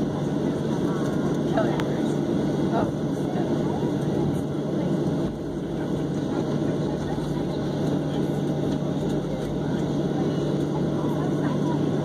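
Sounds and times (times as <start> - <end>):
jet engines rumbling in cabin: 0.0 - 12.0.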